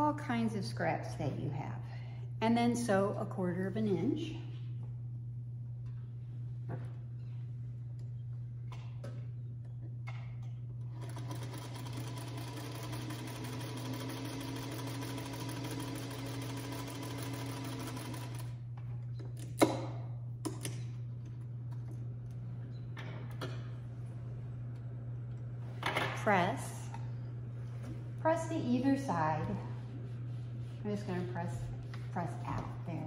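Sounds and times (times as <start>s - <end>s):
low steady hum: 0.0s - 33.0s
sewing machine stitching: 10.9s - 18.6s.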